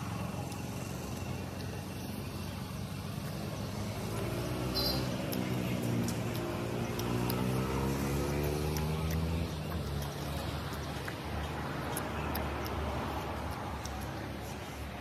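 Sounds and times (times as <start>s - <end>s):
chewing and mouth sounds: 0.0s - 15.0s
vehicle engine rumble: 0.0s - 15.0s.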